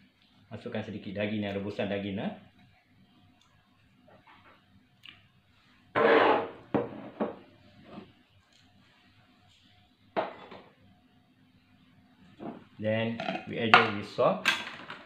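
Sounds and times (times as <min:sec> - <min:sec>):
wooden spoon scraping a pot: 0:06.0 - 0:07.2.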